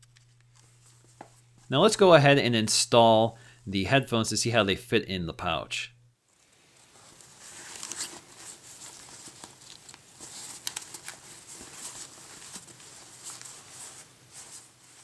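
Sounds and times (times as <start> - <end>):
fabric case rustling and scraping: 6.8 - 15.0.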